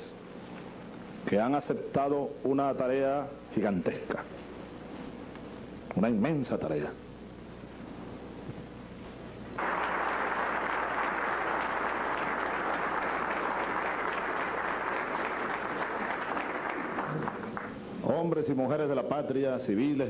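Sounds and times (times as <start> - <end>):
audience applauding: 9.6 - 17.8.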